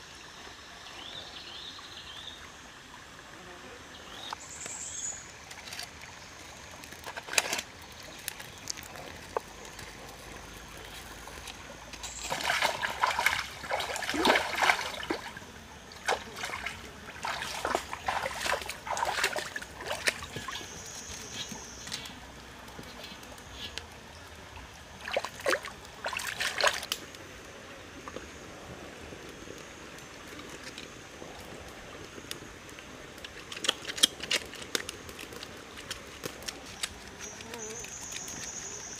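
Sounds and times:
stream trickling: 0.0s - 38.9s
splashing and clatter: 6.8s - 15.4s, 16.0s - 20.8s, 25.0s - 27.0s, 33.2s - 38.6s.

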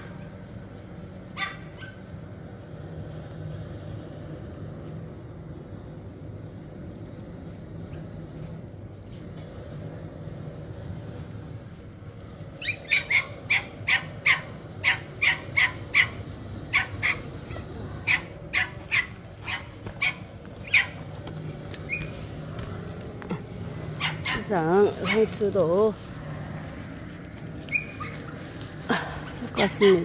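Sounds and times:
dog barking: 1.4s - 2.0s, 12.9s - 17.3s.

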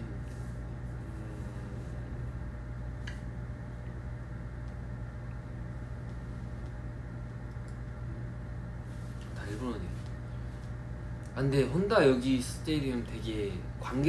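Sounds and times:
ventilation hum with hiss: 0.0s - 14.0s.

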